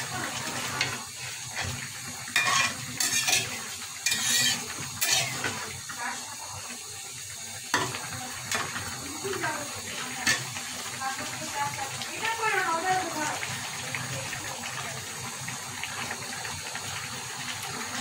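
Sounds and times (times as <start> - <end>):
metal spatula scraping a pan: 0.7 - 5.7.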